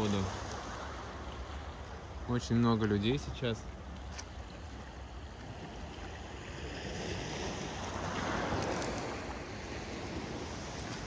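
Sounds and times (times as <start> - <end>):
wave washing up pebble beach: 6.3 - 11.0.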